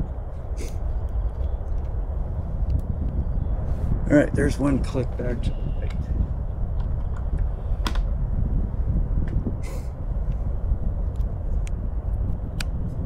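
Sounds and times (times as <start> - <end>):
low outdoor rumble: 0.0 - 13.0
rifle clicks and knocks: 6.8 - 8.1.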